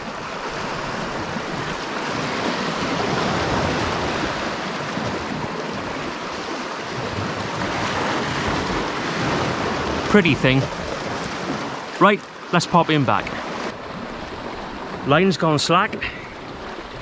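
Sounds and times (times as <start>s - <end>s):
waves washing against rocks: 0.0s - 17.0s.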